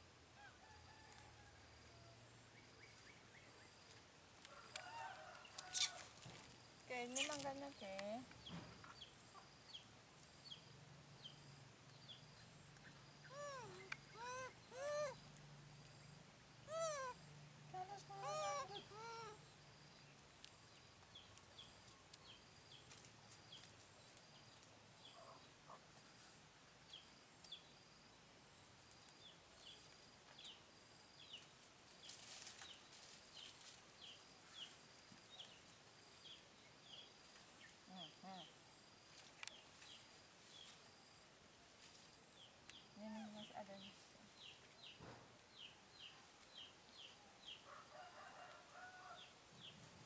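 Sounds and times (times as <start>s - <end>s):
baby monkey coo calls: 13.2s - 15.3s, 16.7s - 17.2s, 17.9s - 19.5s.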